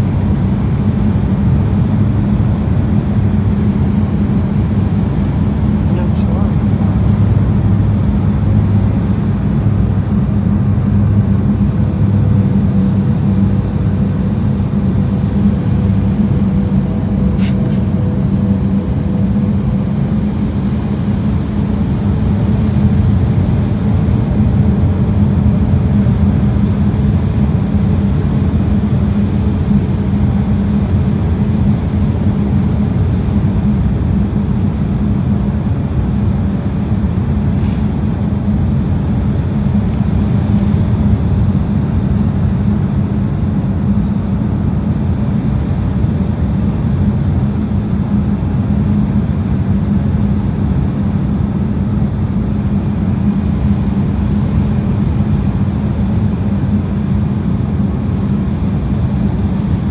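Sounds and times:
airliner cabin engine rumble: 0:00.0 - 0:59.9.

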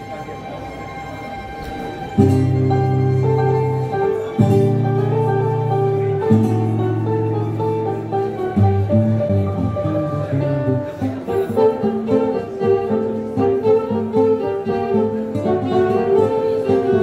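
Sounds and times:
classical guitar: 0:00.0 - 0:17.0
violin: 0:00.0 - 0:17.0.

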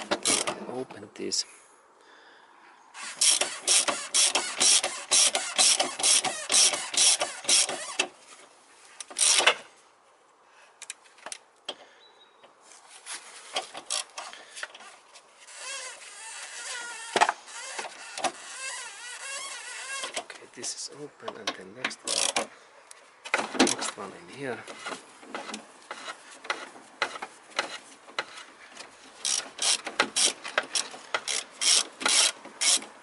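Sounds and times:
ratchet wrench clicking: 0:00.1 - 0:00.5, 0:03.0 - 0:08.0, 0:09.1 - 0:09.5, 0:22.1 - 0:22.4, 0:29.2 - 0:32.9.

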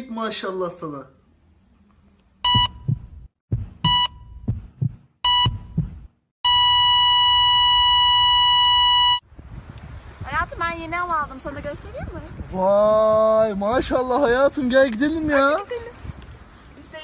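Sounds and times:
low heartbeat thumps: 0:02.4 - 0:06.3
heart monitor beeping: 0:02.4 - 0:09.2
flatline tone: 0:05.2 - 0:09.2.

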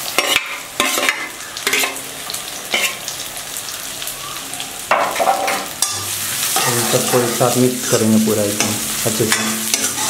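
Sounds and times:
spatula scraping a pan: 0:00.0 - 0:02.0, 0:02.7 - 0:03.1, 0:08.6 - 0:10.0
potatoes sizzling in oil: 0:00.0 - 0:10.0.

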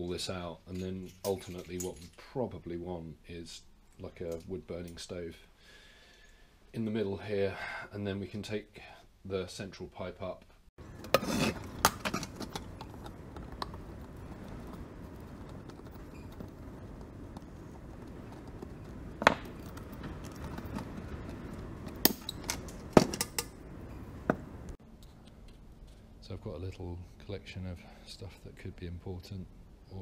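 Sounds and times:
low background rumble: 0:10.8 - 0:24.8
metal clicks and knocks: 0:19.2 - 0:23.6.

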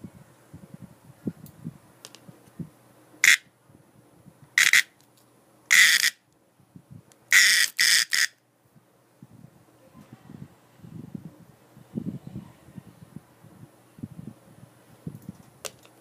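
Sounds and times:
cicada buzzing distress calls: 0:03.2 - 0:03.5, 0:04.6 - 0:04.9, 0:05.7 - 0:06.2, 0:07.3 - 0:08.4.

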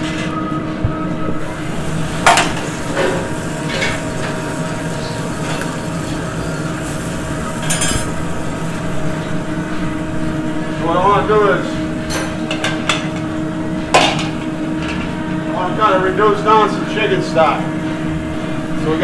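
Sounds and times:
steady kitchen hum: 0:00.0 - 0:19.0
chicken frying in skillet: 0:01.5 - 0:09.1
metal pans and utensils clinking: 0:05.3 - 0:08.2.

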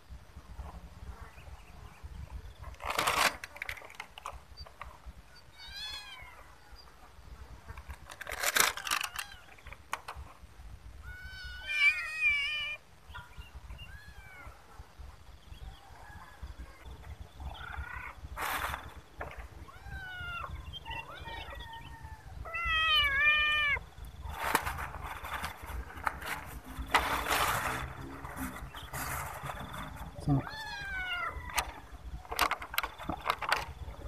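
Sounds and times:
rustling: 0:02.6 - 0:05.1, 0:07.6 - 0:10.5, 0:17.6 - 0:19.9, 0:23.0 - 0:34.0
kittens meowing: 0:05.5 - 0:06.5, 0:11.0 - 0:12.8, 0:13.7 - 0:14.7, 0:19.6 - 0:23.9, 0:30.3 - 0:31.9.

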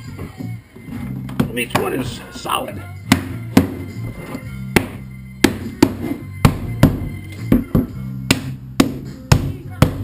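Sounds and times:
music: 0:00.0 - 0:10.0
rubber mallet knocking on plastic pipe: 0:04.7 - 0:10.0.

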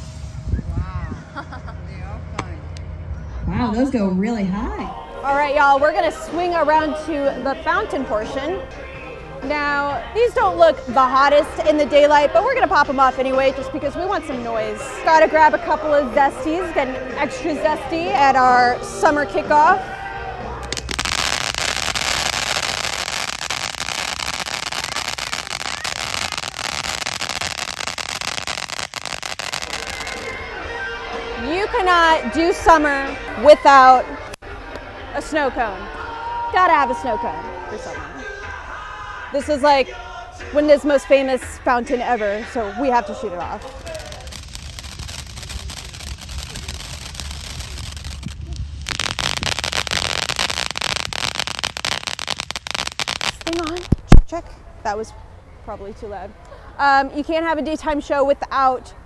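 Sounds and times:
hiss of spraying sparks: 0:20.6 - 0:30.2, 0:43.6 - 0:53.9
small crackles: 0:20.6 - 0:30.3, 0:43.6 - 0:54.3.

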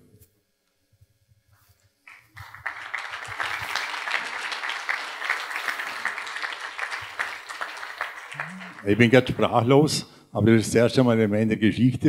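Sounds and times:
audience applause: 0:02.1 - 0:09.7.

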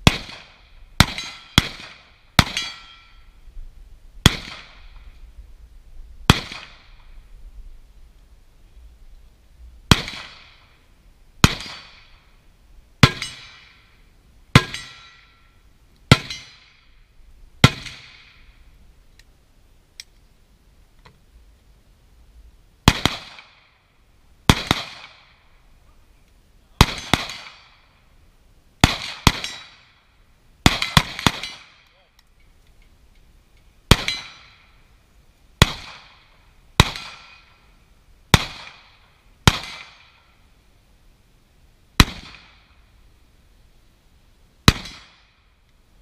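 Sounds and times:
carbine gunshots: 0:00.0 - 0:02.8, 0:04.2 - 0:04.8, 0:06.3 - 0:06.9, 0:09.9 - 0:10.6, 0:11.4 - 0:12.1, 0:22.9 - 0:23.6, 0:24.5 - 0:25.3, 0:26.8 - 0:27.8, 0:28.8 - 0:29.8, 0:30.6 - 0:31.8, 0:33.9 - 0:34.6, 0:35.6 - 0:36.2, 0:36.8 - 0:37.4, 0:38.3 - 0:40.1, 0:44.7 - 0:45.2.

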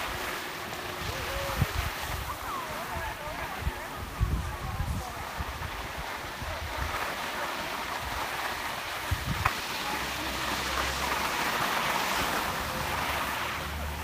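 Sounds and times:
skis scraping over snow: 0:00.0 - 0:14.0
wind rumbling on microphone: 0:00.0 - 0:14.0.

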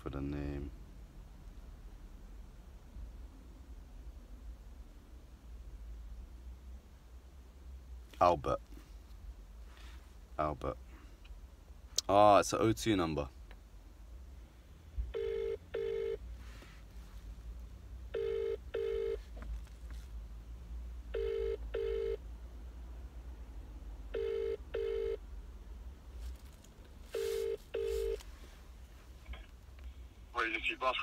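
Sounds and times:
phone ringing tone: 0:15.2 - 0:16.2, 0:18.1 - 0:19.2, 0:21.1 - 0:22.2, 0:24.1 - 0:25.2, 0:27.2 - 0:28.2.

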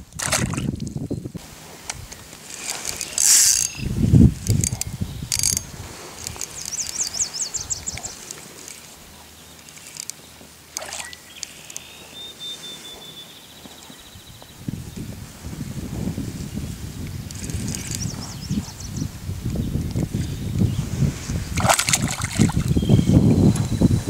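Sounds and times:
reel drag ticking: 0:01.8 - 0:12.2, 0:17.0 - 0:18.7
fishing reel cranking: 0:02.5 - 0:07.1, 0:09.6 - 0:10.2, 0:17.3 - 0:18.1.

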